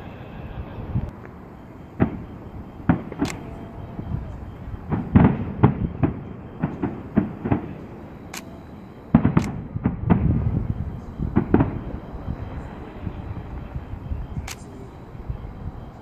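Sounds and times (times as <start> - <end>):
fireworks booming and cracking: 0.0 - 16.0
low rumble: 9.1 - 16.0.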